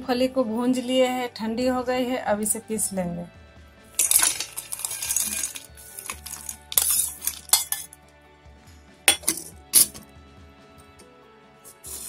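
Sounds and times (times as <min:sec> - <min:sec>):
spoon scraping steel bowl: 0:04.0 - 0:08.0, 0:09.1 - 0:10.0.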